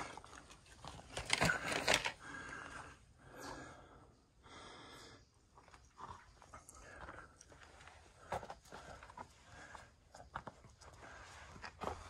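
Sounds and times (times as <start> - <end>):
person breathing hard: 2.2 - 5.3, 6.7 - 10.1.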